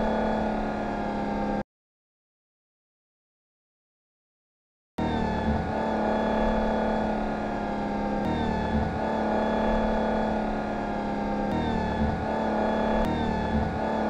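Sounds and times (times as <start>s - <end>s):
sports car engine note: 5.0s - 14.0s.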